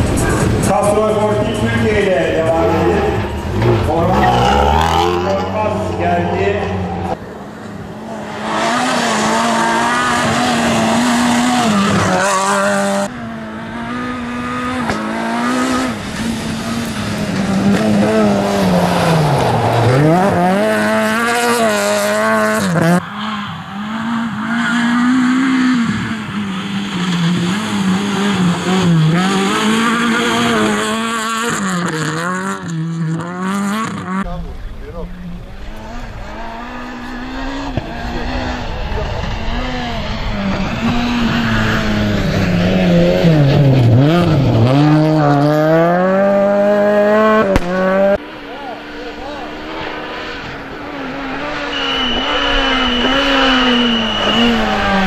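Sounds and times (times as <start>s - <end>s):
rally car engine revving: 0.0s - 55.0s.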